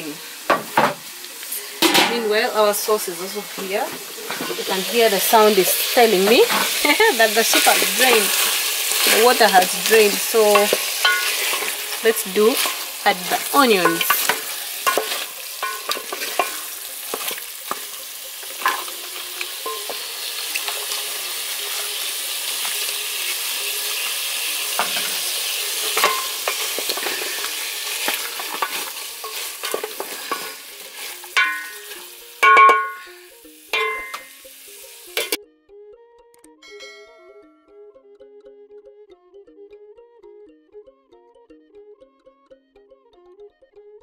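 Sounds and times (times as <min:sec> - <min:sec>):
liver sizzling in oil: 0:00.0 - 0:35.4
wooden spoon knocking on pot: 0:13.8 - 0:16.6, 0:31.4 - 0:33.1.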